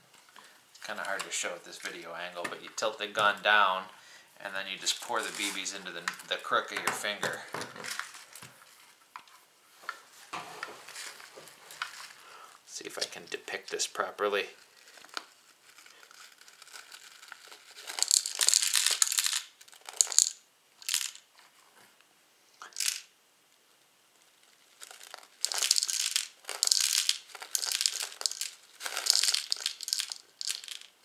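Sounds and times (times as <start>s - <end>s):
steel bbs rattling and clinking: 17.7s - 21.2s, 22.6s - 23.1s, 24.8s - 31.0s.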